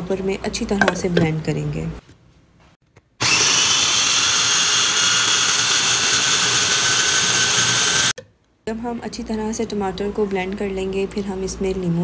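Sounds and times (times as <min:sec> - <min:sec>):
electric food chopper whining: 0:03.2 - 0:08.2.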